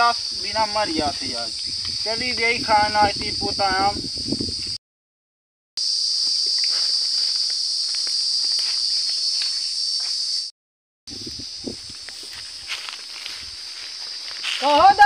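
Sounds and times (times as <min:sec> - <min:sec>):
high-pitched insect drone: 0:00.0 - 0:04.8, 0:05.8 - 0:10.5, 0:11.1 - 0:15.0
footsteps crunching on dry straw: 0:06.2 - 0:10.4, 0:11.7 - 0:15.0.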